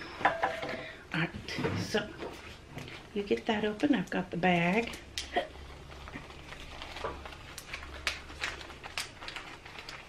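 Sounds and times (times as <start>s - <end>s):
paper rustling: 5.7s - 10.0s.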